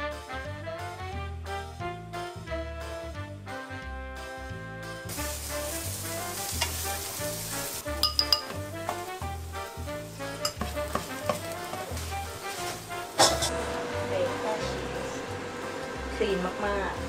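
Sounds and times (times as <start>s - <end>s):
background music with bass: 0.0s - 17.0s
eggs sizzling in a pan: 5.0s - 17.0s
utensil clinks: 8.0s - 8.6s.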